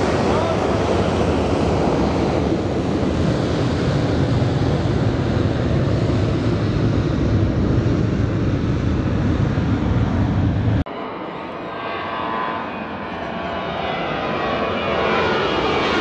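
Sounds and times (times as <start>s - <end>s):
wind on microphone: 0.0s - 10.9s
distant jet engines: 0.0s - 16.0s.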